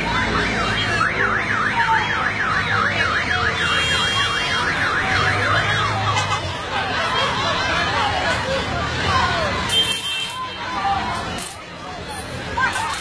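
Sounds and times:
electronic siren wailing: 0:00.3 - 0:06.0.

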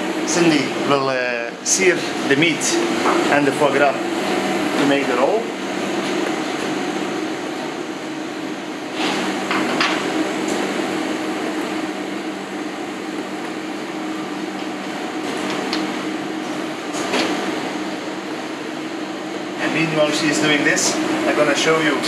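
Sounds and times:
ventilation hood drone: 0:00.0 - 0:22.0.

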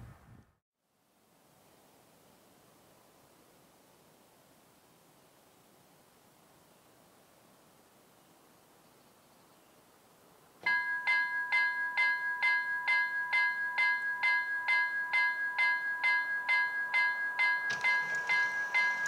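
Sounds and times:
level crossing bell ringing: 0:10.6 - 0:19.0
second crossing bell ringing: 0:10.6 - 0:19.0.

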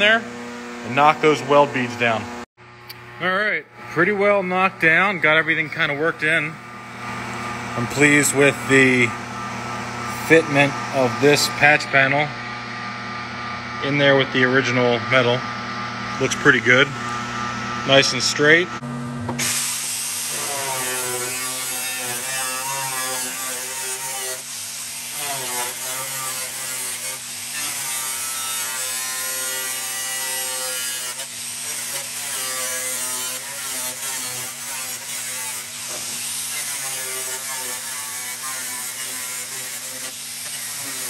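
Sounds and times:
power tool cutting sheet steel: 0:05.8 - 0:09.3, 0:10.0 - 0:12.2, 0:16.1 - 0:41.0.

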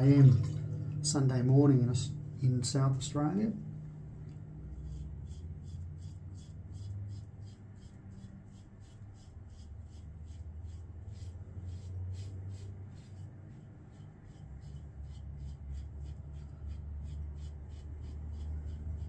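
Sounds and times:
low steady hum: 0:00.0 - 0:19.0
razor scraping stubble: 0:04.8 - 0:19.0.

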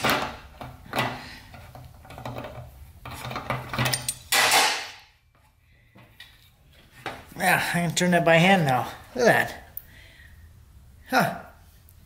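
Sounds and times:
wrench clinking and scraping metal: 0:01.0 - 0:04.6.

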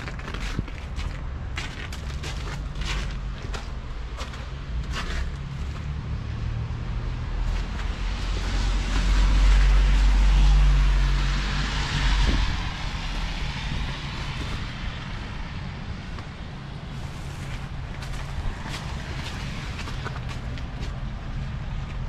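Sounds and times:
passing vehicle hiss and rumble: 0:02.2 - 0:22.0.

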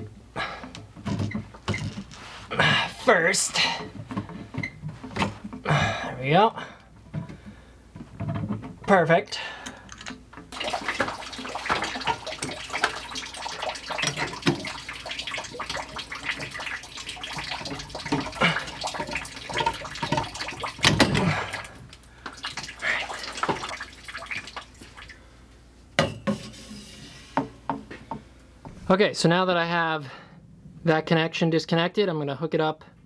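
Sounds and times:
water trickling and dripping: 0:10.5 - 0:25.3.

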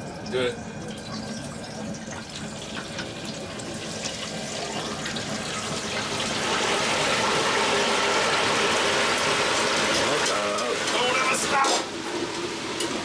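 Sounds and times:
hot oil sizzling and bubbling: 0:00.0 - 0:13.0.

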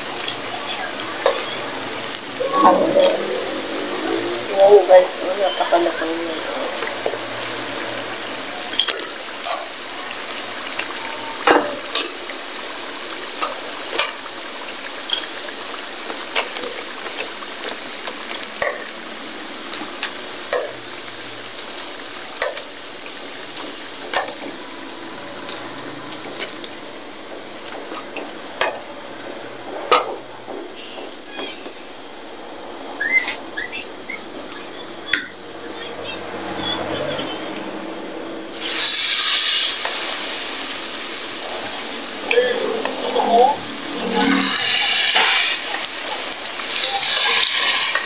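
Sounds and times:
deep-frying sizzle: 0:00.0 - 0:48.0
tongs clicking and scraping wok: 0:44.2 - 0:48.0.

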